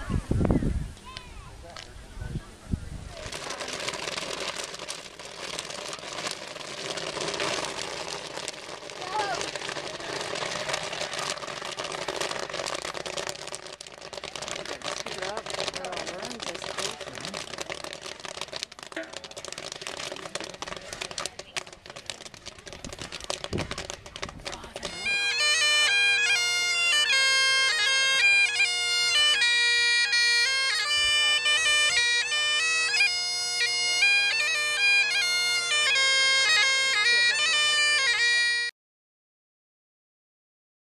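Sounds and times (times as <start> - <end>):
outdoor crowd noise: 0.0 - 38.7
bagpipes playing a tune: 3.3 - 22.2, 22.9 - 38.7.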